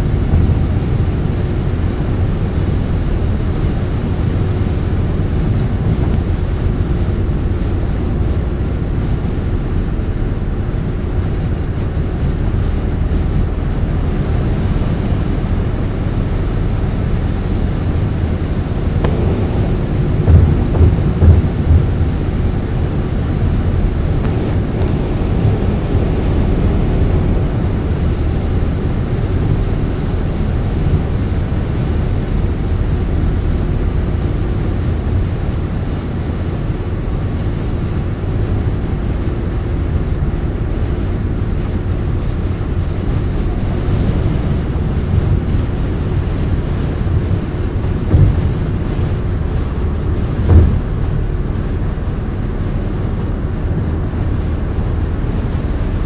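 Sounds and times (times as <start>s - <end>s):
low thumps: 0.0s - 1.2s, 18.8s - 27.5s, 47.7s - 52.0s
car road noise: 0.0s - 56.0s.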